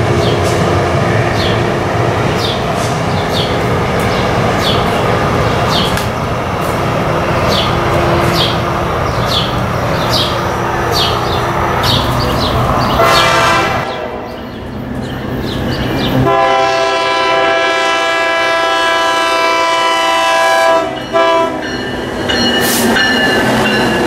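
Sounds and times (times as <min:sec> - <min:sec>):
train rumbling: 0:00.0 - 0:24.0
bird chirping: 0:02.3 - 0:06.3, 0:07.4 - 0:13.3, 0:14.3 - 0:16.2.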